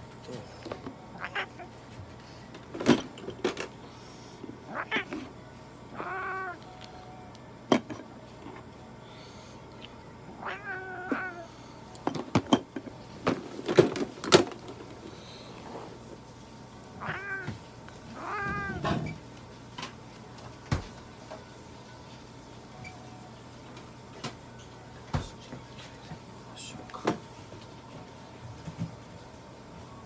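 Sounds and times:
cat meowing: 1.1 - 1.7, 4.7 - 5.3, 5.9 - 6.8, 10.3 - 11.5, 17.0 - 19.1.

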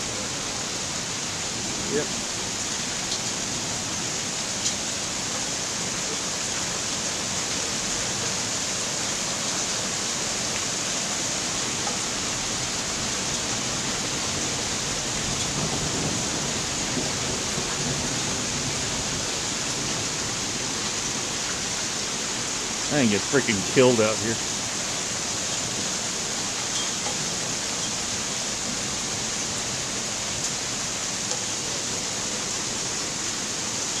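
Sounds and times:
hail and rain pelting: 0.0 - 34.0.

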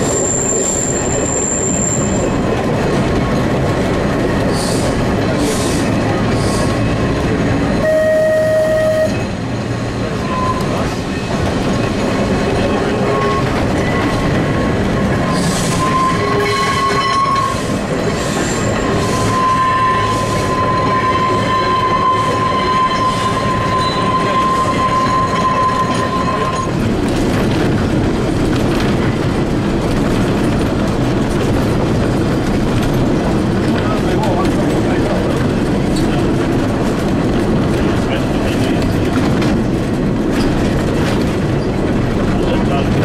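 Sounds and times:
high wheel squeal: 0.0 - 2.5, 10.2 - 11.3, 12.8 - 14.4, 15.3 - 26.8
tram wheels rumbling on track: 0.0 - 43.0.

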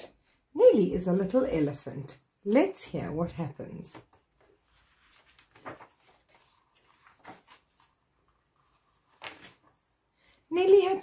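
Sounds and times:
book pages rustling: 3.9 - 10.0.

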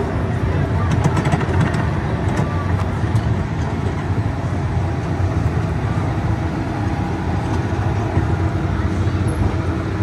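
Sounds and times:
ride train rumbling on steel track: 0.0 - 10.0.

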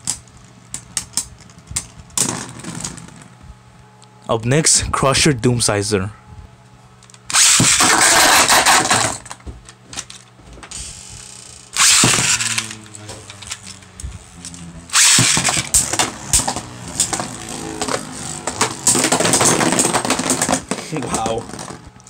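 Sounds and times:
spinning top launcher whirring zip: 7.3 - 9.2, 10.8 - 20.7
spinning tops humming and clicking: 10.7 - 20.5.

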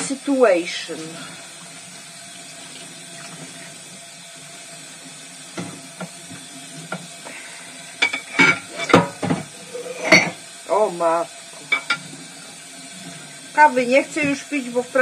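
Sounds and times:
tap running into a sink: 5.4 - 7.4, 8.0 - 10.4
crockery clattering: 8.0 - 10.4, 11.8 - 12.1
crockery clinking: 8.0 - 10.4, 11.7 - 12.1.

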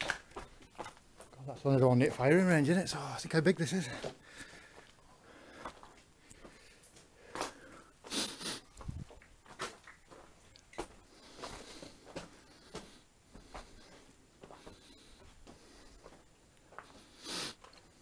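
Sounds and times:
footsteps crunching on rock rubble: 0.0 - 2.4, 3.8 - 7.7, 8.7 - 17.0
breathing: 3.9 - 8.6, 11.0 - 18.0.

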